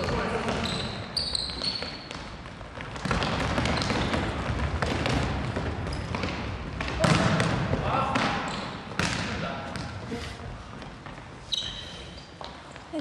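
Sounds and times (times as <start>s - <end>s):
ball kicked and bouncing on wood floor: 1.6s - 10.0s.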